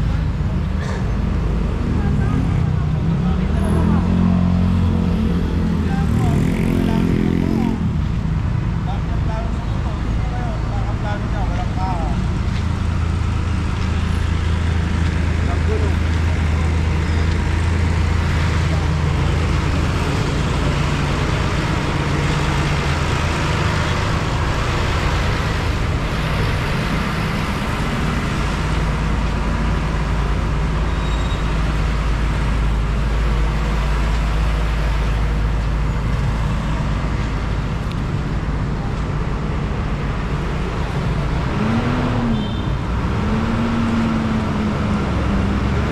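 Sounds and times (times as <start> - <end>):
street traffic: 0.0 - 45.9
vehicle engine revving: 39.4 - 45.9.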